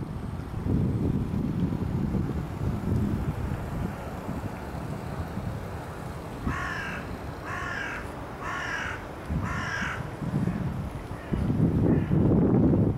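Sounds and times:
crow cawing: 6.4 - 10.1.

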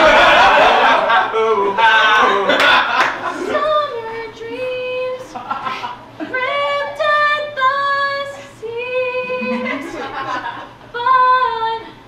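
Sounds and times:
woman singing a cappella: 3.4 - 5.5, 6.2 - 10.0, 10.9 - 12.0.

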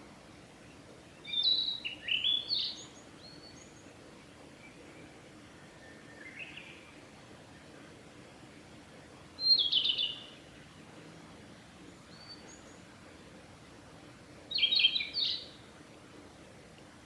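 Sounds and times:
flycatcher singing: 1.2 - 7.0, 9.4 - 10.5, 14.5 - 15.6.

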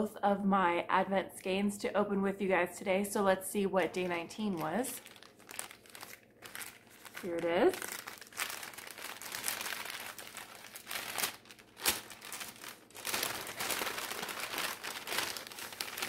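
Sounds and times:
paper packet crinkling and tearing: 4.0 - 16.0.

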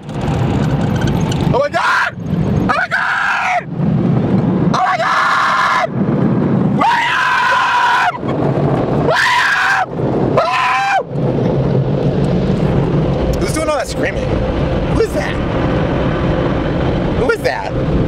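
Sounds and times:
person screaming: 1.8 - 3.7, 4.8 - 5.9, 6.8 - 8.3, 9.1 - 11.1
car wash rumble and hiss: 9.8 - 18.0.

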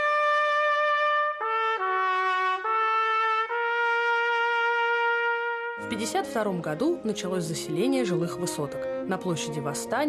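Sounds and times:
trumpet playing slow melody: 0.0 - 6.3.

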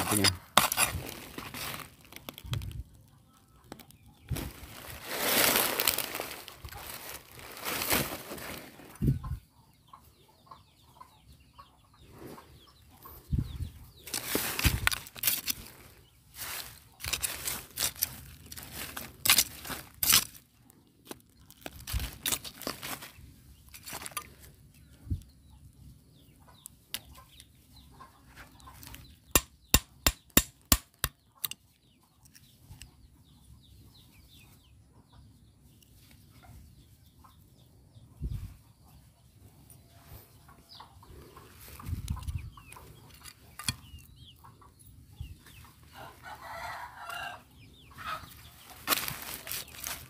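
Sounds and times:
metal tool digging through soil: 0.0 - 2.8, 14.0 - 24.5, 41.8 - 44.1
hens clucking: 8.5 - 14.8, 26.3 - 29.3, 39.9 - 50.0.

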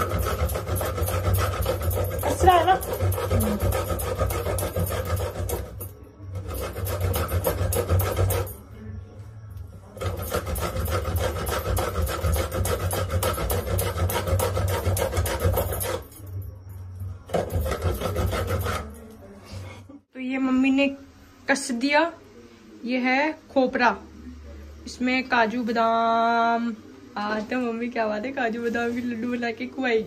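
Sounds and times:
coconut grating rasps: 0.0 - 8.6, 9.9 - 16.3, 17.3 - 19.1.

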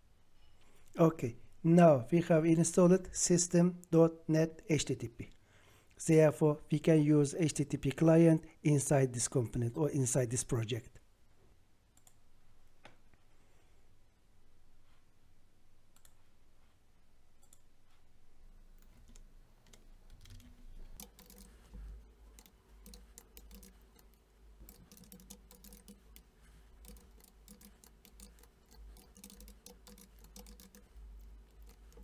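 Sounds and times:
keyboard typing clicks: 18.8 - 32.0.

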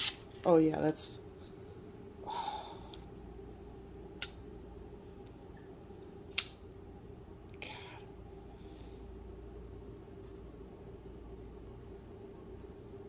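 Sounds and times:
folding knife clicks: 6.3 - 6.6.

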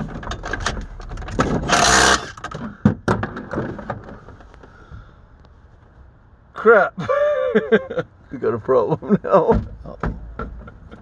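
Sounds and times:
cordless driver burst: 1.6 - 2.4
sharp knocks: 9.5 - 11.0.

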